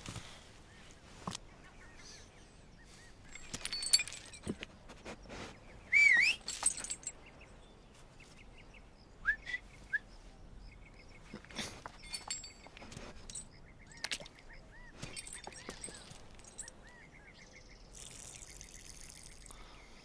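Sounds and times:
clicks and rustling: 3.3s - 5.2s.

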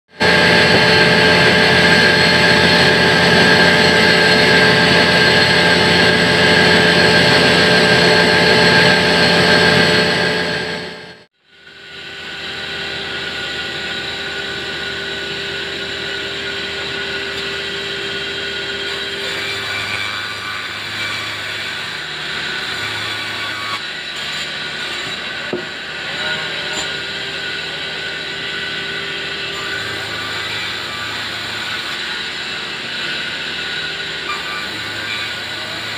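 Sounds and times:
band saw cutting log: 0.1s - 35.9s
steady saw whine: 0.1s - 35.9s.

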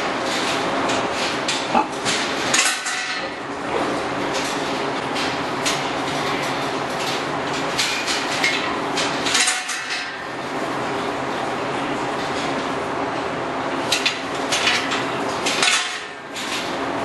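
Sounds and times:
steady background noise: 0.0s - 17.0s
metal gate clanking and rattling: 0.3s - 3.4s.

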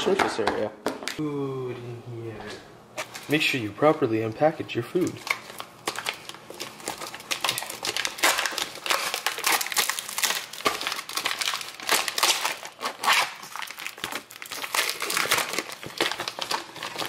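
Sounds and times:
plastic packaging crinkling: 4.2s - 17.0s.

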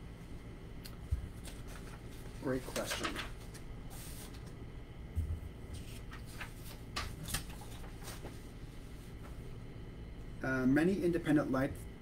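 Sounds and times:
paper rustling: 1.2s - 4.6s, 5.7s - 8.5s.

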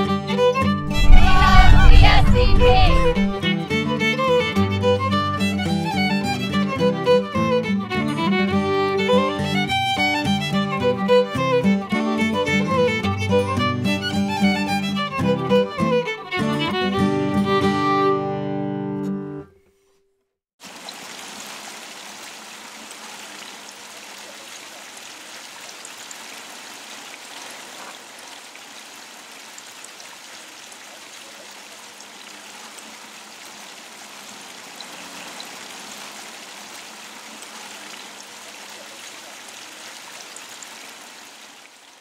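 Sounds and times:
fountain water splashing into pool: 20.6s - 42.0s.

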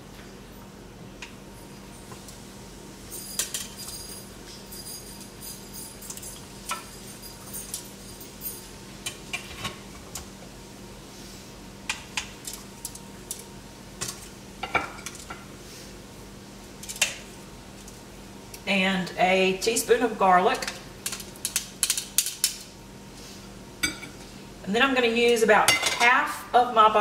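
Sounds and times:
kitchen utensils and dishes clinking: 3.1s - 8.7s, 25.7s - 26.2s.

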